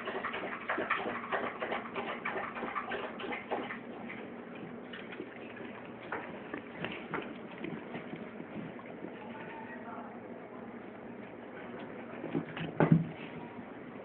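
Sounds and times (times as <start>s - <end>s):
dog making clicking sounds: 0.0s - 4.3s.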